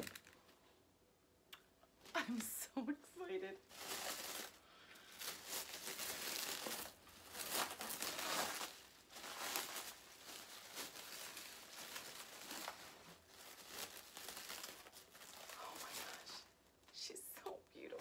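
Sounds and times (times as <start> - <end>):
plastic bag crinkling: 0.0 - 0.5, 3.6 - 17.0.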